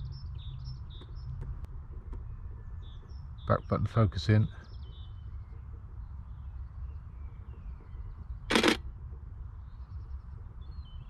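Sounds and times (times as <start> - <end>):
camera shutter clack: 8.5 - 8.8.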